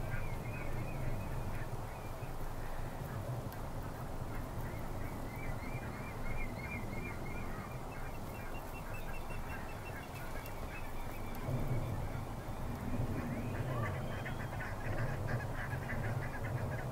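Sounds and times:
steady low rumble: 0.0s - 16.9s
waterbirds calling: 0.0s - 16.9s.

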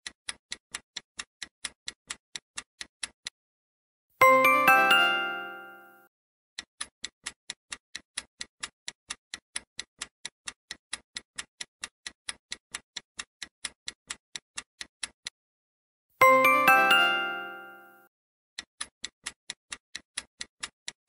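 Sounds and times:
clock ticking: 0.0s - 3.3s, 4.2s - 5.9s, 6.6s - 15.4s, 16.2s - 18.0s, 18.6s - 21.0s
ringing musical jingle: 4.2s - 6.1s, 16.2s - 18.1s.

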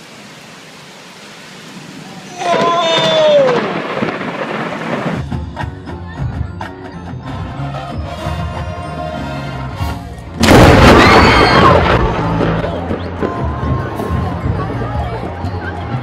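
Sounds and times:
drums and percussion: 5.0s - 10.9s, 11.7s - 16.0s
marching band playing: 7.0s - 10.9s
loud crash: 10.4s - 13.4s.

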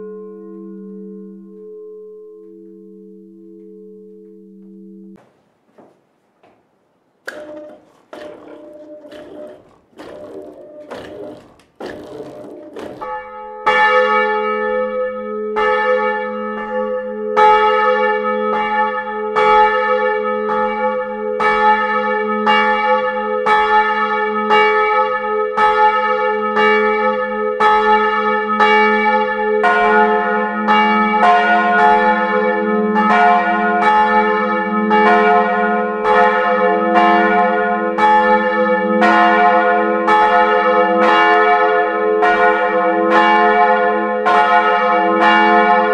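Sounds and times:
large deep church bell: 0.0s - 5.2s, 12.0s - 45.9s
small church bell ringing: 0.0s - 5.2s, 12.6s - 45.9s.

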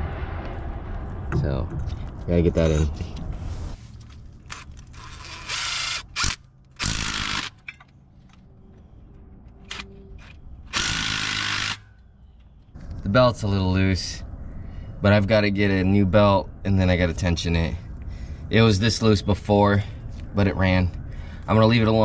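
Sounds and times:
power tool fastening bolts: 4.5s - 7.8s, 9.7s - 11.8s.

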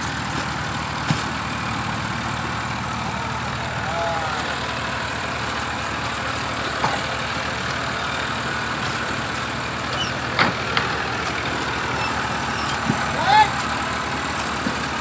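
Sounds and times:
tractor diesel engine under load: 0.0s - 15.0s
short rising squeak: 9.9s - 10.6s, 11.9s - 12.9s.

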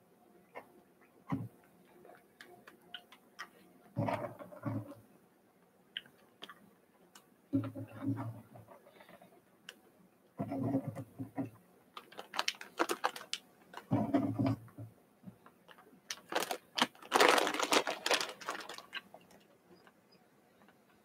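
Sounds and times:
packaging rustling and clicks: 12.0s - 13.9s, 15.7s - 19.4s.

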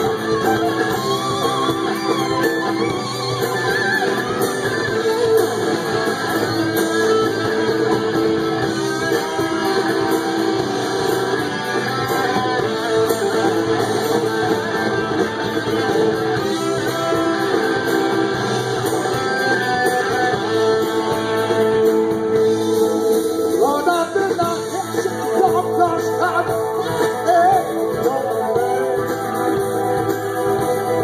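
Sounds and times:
rock band playing live: 0.0s - 31.0s
man singing: 23.6s - 29.2s.

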